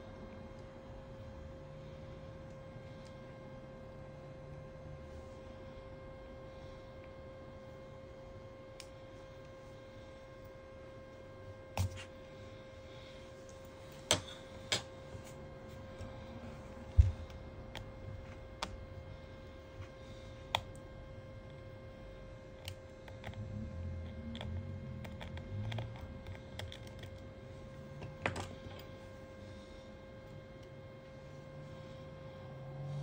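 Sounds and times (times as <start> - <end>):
faint steady hum: 0.0 - 33.0
soft rubbing and handling: 11.2 - 20.5.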